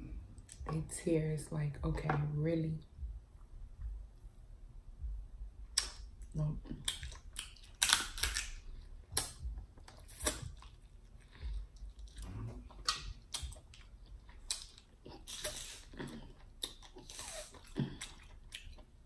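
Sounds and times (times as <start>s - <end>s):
chewing and wet mouth sounds: 5.7s - 19.0s
crab shell snapping: 6.9s - 8.6s.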